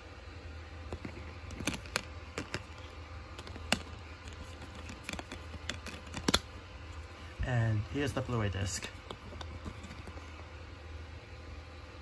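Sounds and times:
plastic disc case clicks: 0.9s - 6.5s.

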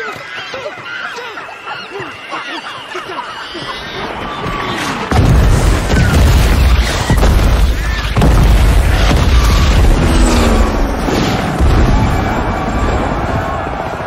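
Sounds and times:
heavy explosions: 4.9s - 14.0s.

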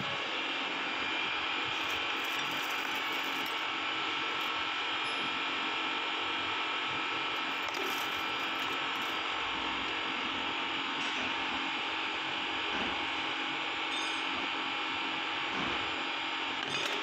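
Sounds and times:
metal parts clicking: 1.6s - 3.6s, 7.4s - 9.2s, 16.6s - 17.0s.

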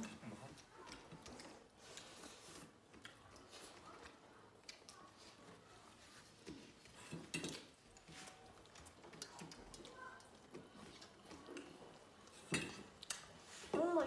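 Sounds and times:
food and metal clicks: 6.0s - 14.0s.

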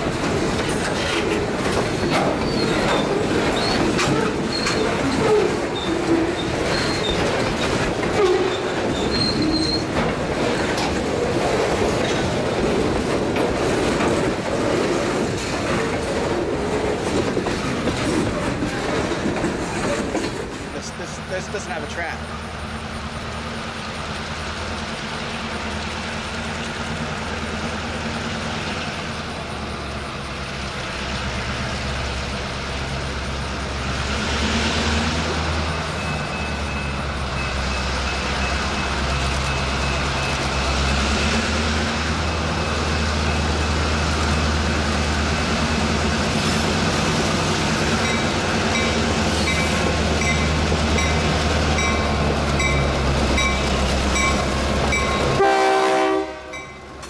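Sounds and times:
diesel locomotive engines rumbling: 0.0s - 57.0s
locomotive bell ringing: 48.0s - 55.4s, 56.5s - 57.0s.

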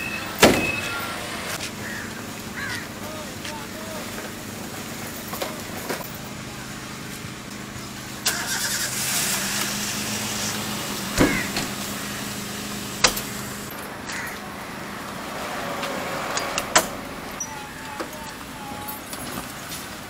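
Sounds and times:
vehicle engine humming: 0.0s - 20.0s
metal hatch shutting thump: 11.2s - 11.8s.

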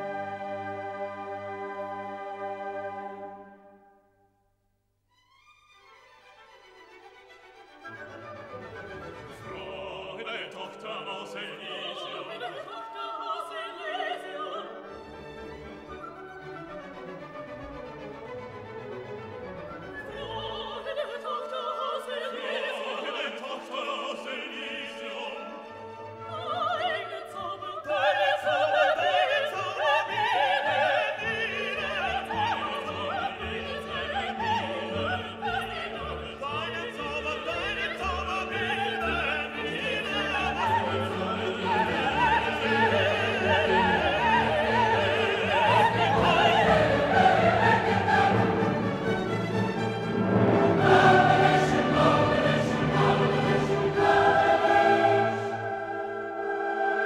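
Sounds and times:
orchestral music: 0.0s - 4.1s, 5.3s - 57.0s
operatic singing: 8.7s - 15.9s, 19.8s - 57.0s.

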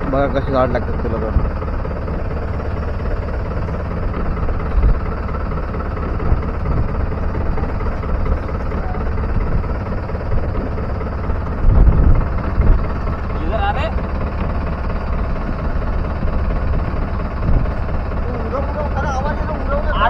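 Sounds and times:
boat engine running: 0.0s - 20.0s
wind rumble on microphone: 11.6s - 13.1s, 17.4s - 17.8s.

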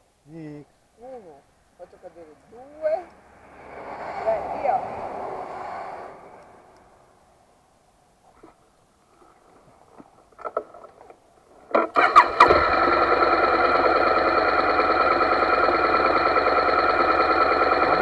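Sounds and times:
faint clicks and rustles: 8.2s - 11.8s
motorcycle starter cranking: 10.4s - 18.0s
motorcycle engine idling: 11.9s - 18.0s.

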